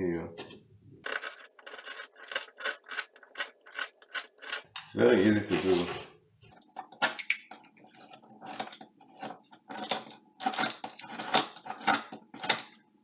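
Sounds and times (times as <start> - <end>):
knife scraping drywall: 7.9 - 11.9.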